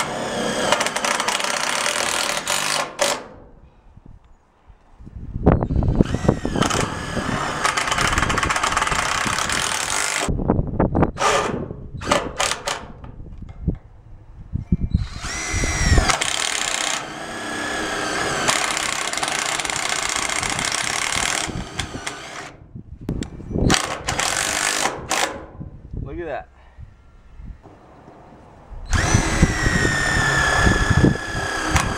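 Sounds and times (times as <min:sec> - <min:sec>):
cordless drill driving screws: 0:00.0 - 0:03.3, 0:05.9 - 0:10.3, 0:15.0 - 0:22.6, 0:23.7 - 0:25.4, 0:28.9 - 0:31.9.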